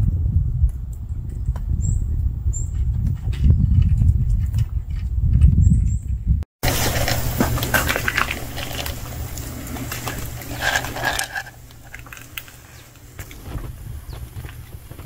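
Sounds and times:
low rumble of wind: 0:00.0 - 0:15.0
footsteps on gravel: 0:06.6 - 0:15.0
handling noise: 0:06.6 - 0:15.0.

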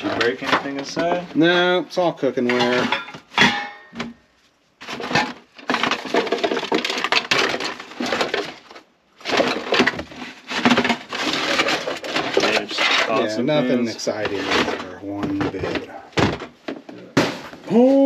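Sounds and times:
aluminum foil crinkling: 0:04.8 - 0:15.0.

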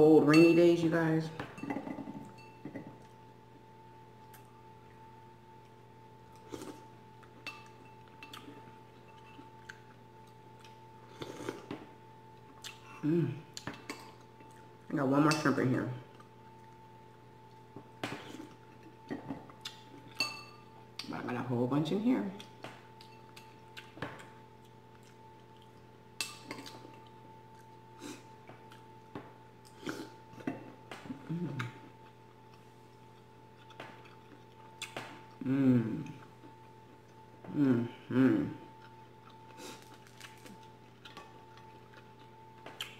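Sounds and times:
faint steady hum: 0:00.0 - 0:42.9
spoon clinking against ceramic bowl: 0:01.5 - 0:02.9, 0:20.1 - 0:20.6
spoon clinking against bowl: 0:20.1 - 0:20.6
mouth sounds of eating: 0:31.1 - 0:32.2, 0:33.1 - 0:36.8, 0:37.5 - 0:42.9.

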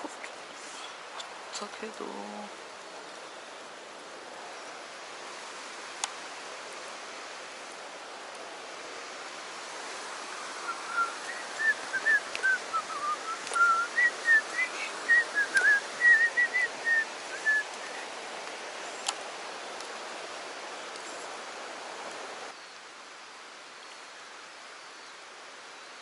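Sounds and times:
stream rushing over rock: 0:00.0 - 0:26.0
whistled notes: 0:10.6 - 0:17.9.

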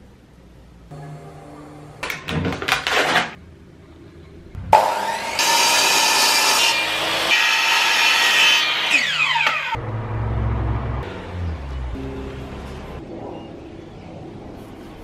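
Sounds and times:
electric mitre saw cutting wood: 0:04.7 - 0:09.8.

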